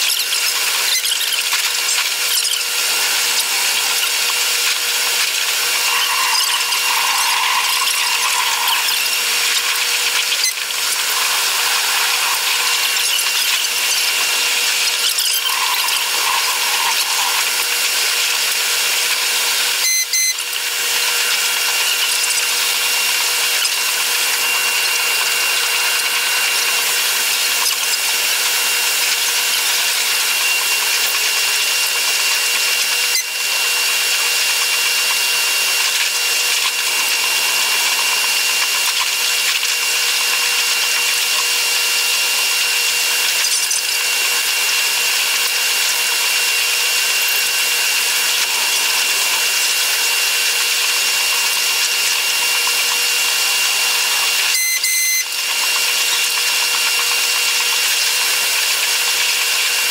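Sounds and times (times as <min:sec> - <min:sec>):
high buzzing hiss: 0:02.7 - 0:18.6.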